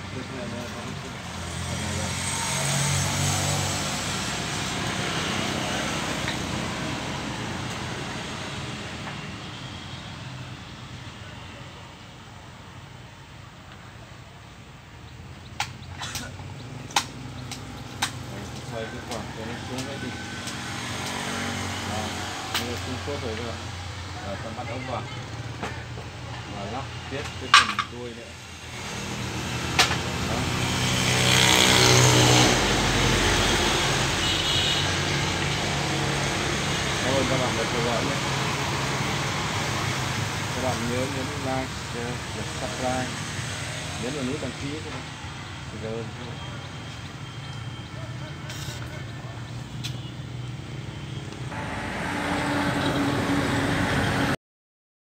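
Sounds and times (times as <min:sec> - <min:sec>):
rotary hammer drill motor drone: 0:28.4 - 0:45.1, 0:51.5 - 0:54.4.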